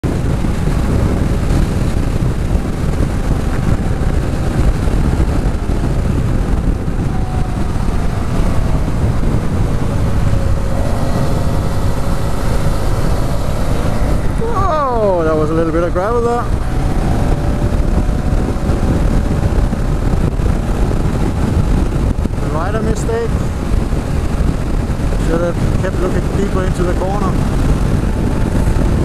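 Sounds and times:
motorcycle engine running: 0.0 - 29.0
wind on microphone: 0.0 - 29.0.

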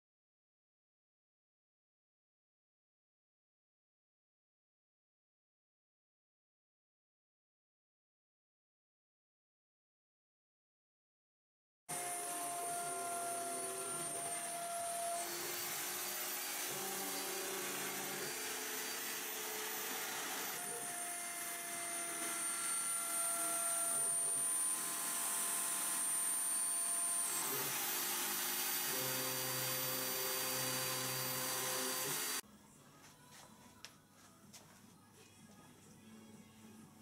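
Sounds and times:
router spindle whining while cutting metal: 11.9 - 32.4.

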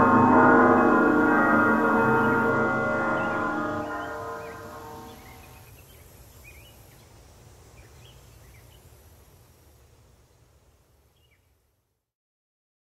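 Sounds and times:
low rumble: 0.0 - 5.4.

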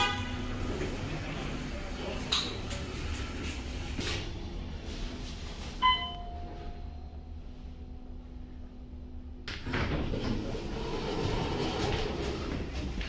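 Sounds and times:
elevator car rumble: 0.0 - 13.0
elevator chime ding: 5.8 - 7.3
elevator door sliding shut: 9.5 - 13.0.

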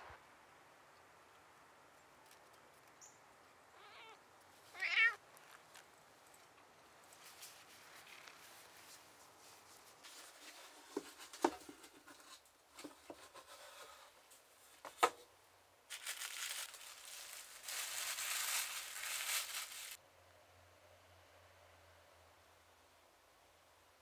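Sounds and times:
tissue paper crinkling: 15.9 - 20.0.

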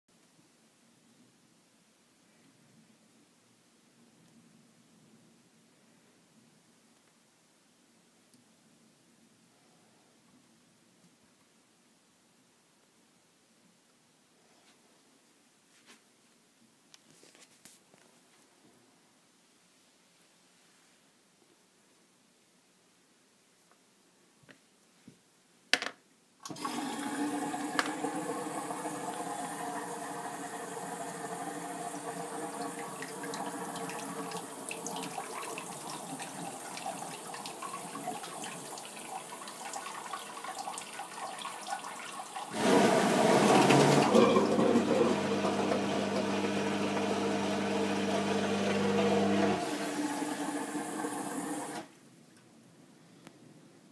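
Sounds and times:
toilet flush button click: 26.4 - 29.3
water rushing into toilet bowl: 26.4 - 51.9
pump motor humming: 26.5 - 35.0, 42.5 - 51.9.

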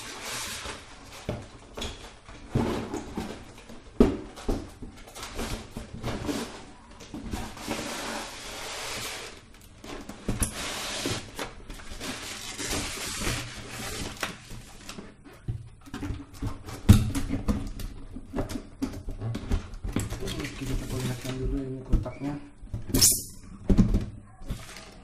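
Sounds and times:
cardboard rustling: 0.0 - 15.5, 24.5 - 25.0.

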